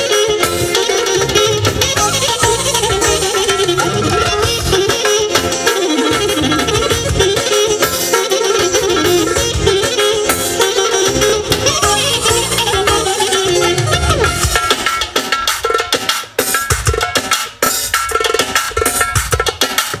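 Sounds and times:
saxophone lead melody: 0.0 - 15.2
keyboard: 0.0 - 17.7
drums: 0.0 - 20.0.

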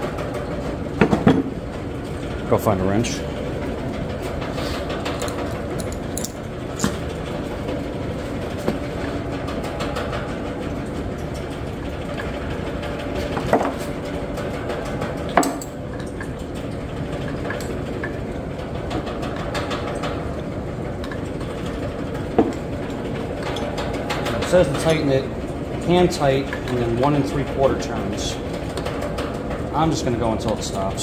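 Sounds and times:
steady machine hum: 0.0 - 31.0.

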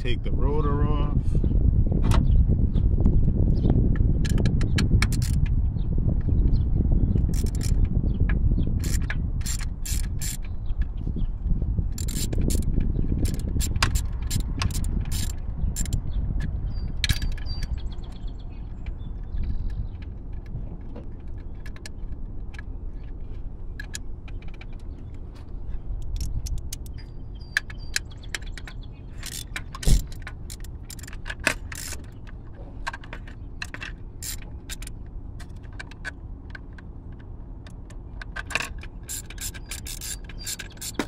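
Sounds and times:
low steady rumble: 0.0 - 41.0
tool clicking on metal parts: 4.2 - 5.5, 7.2 - 8.0, 8.8 - 10.9, 11.9 - 23.2, 23.8 - 41.0.

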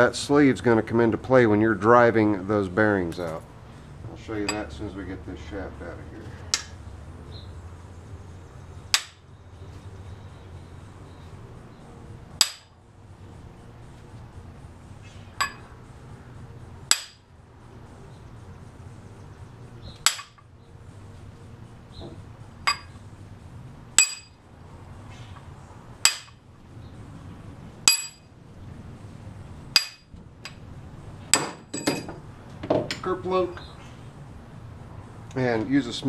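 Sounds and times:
hammer striking metal punch: 8.9 - 9.2, 12.4 - 12.7, 15.4 - 15.7, 16.9 - 17.2, 20.0 - 20.4, 22.7 - 23.0, 24.0 - 24.4, 26.0 - 26.4, 27.9 - 28.2, 29.7 - 30.1, 31.3 - 32.2
metal clinks: 15.4 - 15.7, 22.6 - 23.0, 24.0 - 24.4, 27.8 - 28.2, 31.3 - 32.2.

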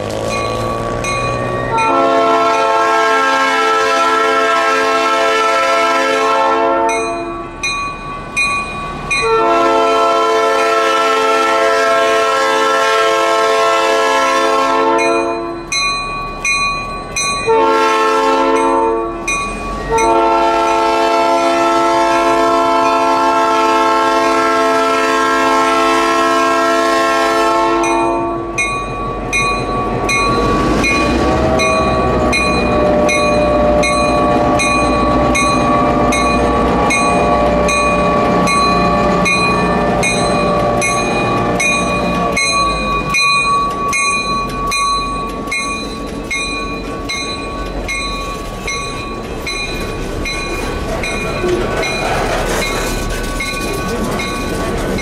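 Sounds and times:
diesel locomotive engine rumbling: 0.0 - 55.0
train wheels rumbling on rails: 0.0 - 55.0
locomotive air horn blasts: 1.7 - 7.4, 9.2 - 15.6, 17.5 - 19.2, 19.9 - 28.6.

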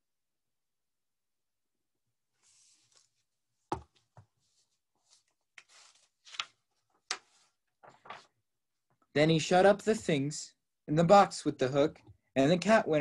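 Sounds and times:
book pages rustling: 2.4 - 8.4.

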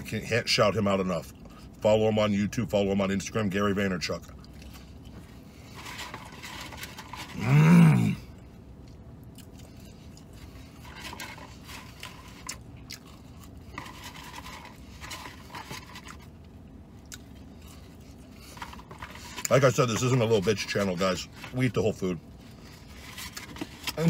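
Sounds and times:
man chewing food: 4.2 - 19.6.

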